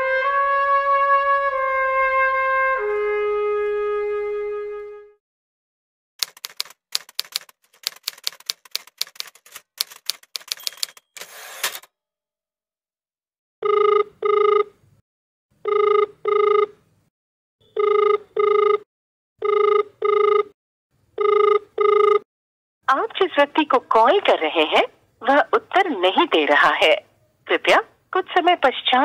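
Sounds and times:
typewriter keys clacking: 6.2s - 11.9s
typewriter rasping sweep: 6.2s - 11.9s
telephone ringback tone: 13.6s - 14.8s, 15.6s - 16.8s, 17.6s - 18.8s, 19.4s - 20.5s, 21.2s - 22.2s.

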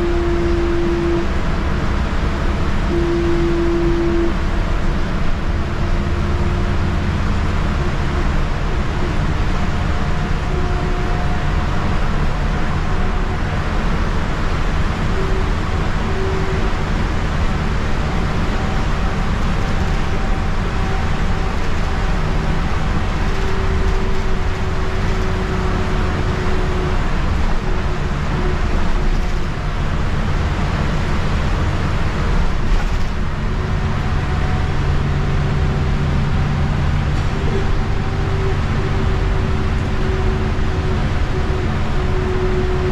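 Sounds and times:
bus engine drone: 0.0s - 42.9s
road noise: 0.0s - 42.9s.

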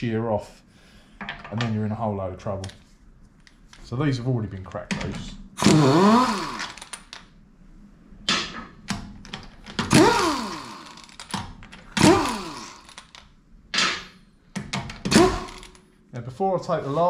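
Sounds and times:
impact gun spinning wheel nuts: 5.6s - 7.1s, 9.7s - 13.2s, 15.0s - 15.8s.

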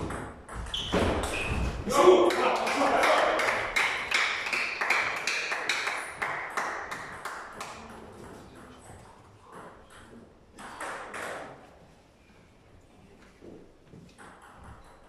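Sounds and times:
table tennis ball bouncing: 0.0s - 1.4s, 8.8s - 11.6s, 14.0s - 15.0s.

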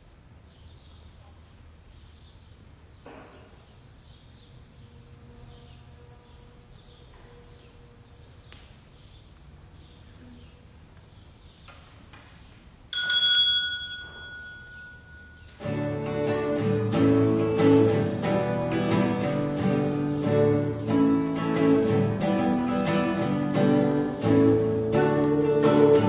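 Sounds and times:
small bell ringing: 12.9s - 15.6s.

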